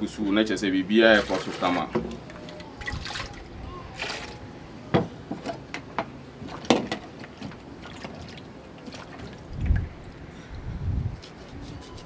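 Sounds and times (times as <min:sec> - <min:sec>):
light wet splashing: 0:01.1 - 0:04.4, 0:06.4 - 0:10.0.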